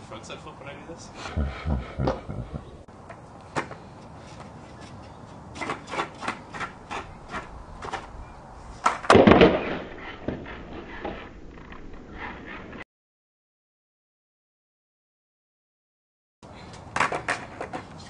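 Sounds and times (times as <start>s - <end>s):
skateboard clicks and knocks: 3.0s - 3.8s, 4.4s - 8.2s, 8.8s - 12.8s, 16.7s - 18.0s
skateboard clattering and rolling: 5.0s - 8.2s, 8.8s - 12.8s, 16.7s - 18.0s.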